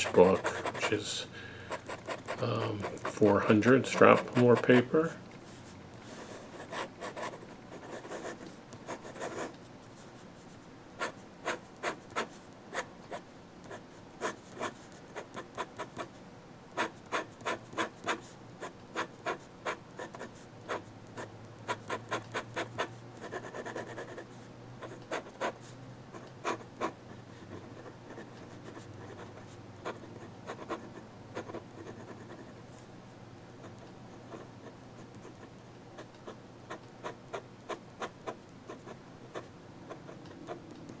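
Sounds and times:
pen nib scratching paper: 0.0s - 1.1s, 1.7s - 4.9s, 11.0s - 16.1s, 16.8s - 18.3s, 19.0s - 24.2s, 26.2s - 32.6s.

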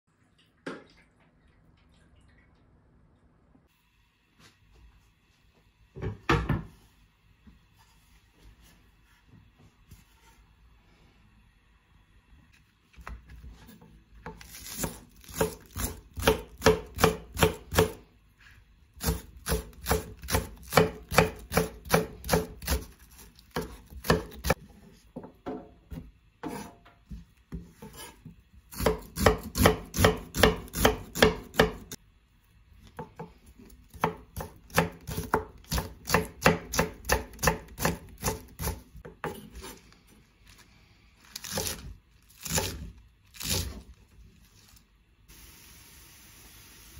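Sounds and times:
knife chopping on wooden board: 14.2s - 18.0s, 19.0s - 24.6s, 25.2s - 32.0s, 33.0s - 39.8s.

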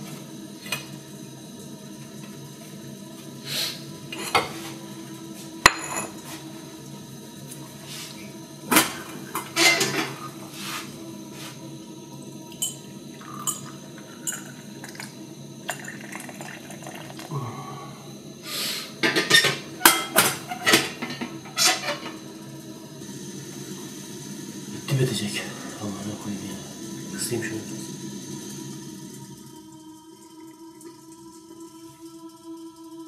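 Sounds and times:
dishes and cutlery clinking: 5.7s - 6.3s, 8.8s - 10.2s, 19.0s - 22.1s
tea pouring into glass: 12.5s - 17.4s, 24.7s - 32.8s.

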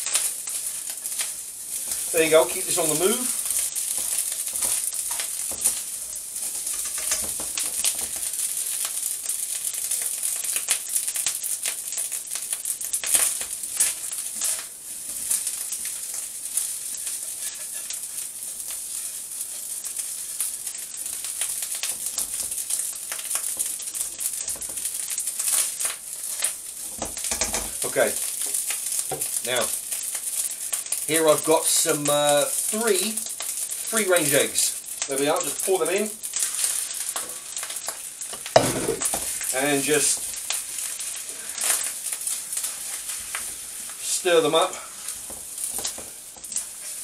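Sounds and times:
food sizzling in hot oil: 0.0s - 47.0s
spatula scraping a wok: 13.7s - 27.6s, 36.3s - 47.0s.

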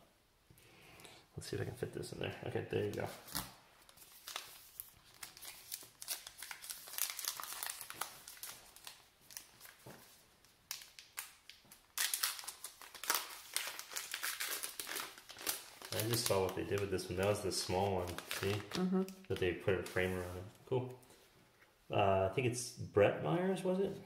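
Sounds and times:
wrapper crinkling and tearing: 2.8s - 20.4s.

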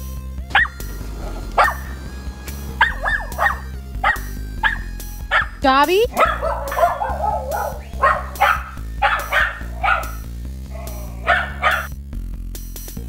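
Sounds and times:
background music: 0.0s - 13.0s
dog barking: 0.5s - 0.9s, 1.6s - 2.0s, 2.8s - 11.9s.

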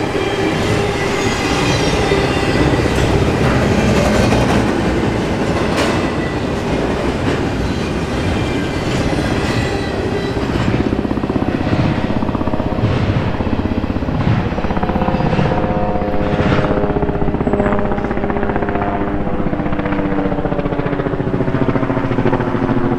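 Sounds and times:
crossing warning bell ringing: 0.0s - 11.5s
freight train rumbling: 0.0s - 22.9s.

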